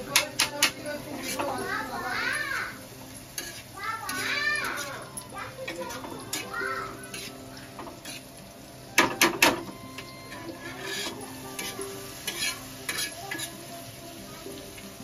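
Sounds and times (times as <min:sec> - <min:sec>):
spatula clacking against pan: 0:00.0 - 0:01.7, 0:03.3 - 0:08.3, 0:09.0 - 0:13.6
metal spatula scraping pan: 0:00.0 - 0:02.0, 0:03.3 - 0:08.4, 0:09.0 - 0:13.6
shrimp sizzling in pan: 0:00.0 - 0:15.0.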